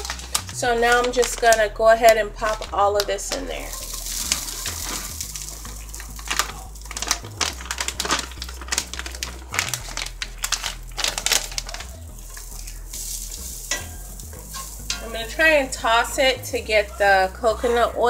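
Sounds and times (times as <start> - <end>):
plastic bag crinkling: 0.0 - 18.0
food shreds pouring into skillet: 3.7 - 15.4.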